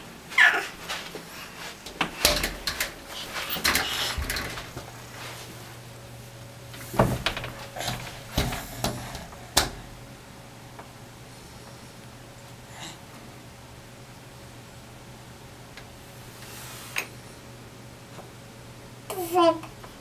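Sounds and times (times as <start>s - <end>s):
palms slapping mirrored door: 6.9s - 9.9s.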